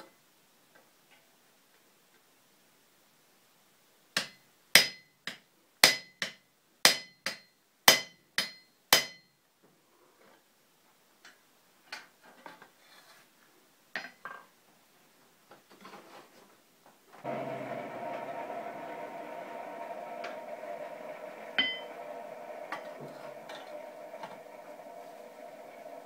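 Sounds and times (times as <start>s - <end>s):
hammer striking steel on anvil: 4.2s - 9.3s, 21.6s - 22.0s.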